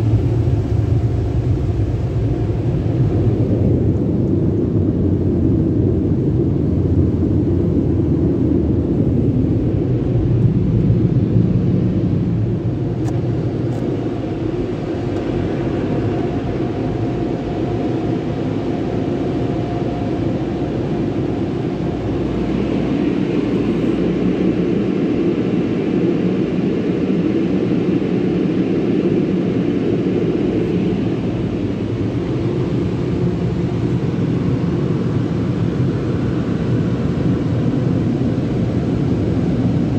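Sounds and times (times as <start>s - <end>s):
car wash machinery rumbling: 8.0s - 24.9s.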